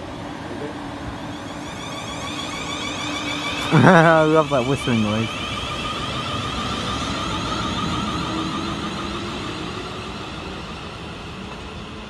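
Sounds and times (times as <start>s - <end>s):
train wheels rumbling: 0.0s - 12.0s
electric train whining whistle: 0.9s - 12.0s
low rising tone: 1.3s - 10.8s.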